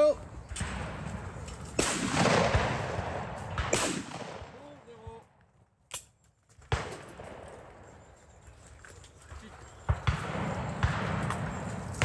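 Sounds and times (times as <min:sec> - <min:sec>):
shotgun shots echoing: 0:00.5 - 0:05.0, 0:06.7 - 0:07.7, 0:09.8 - 0:12.0.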